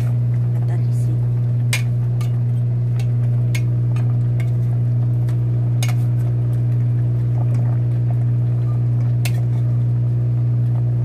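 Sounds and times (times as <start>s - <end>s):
loud low hum: 0.0s - 11.0s.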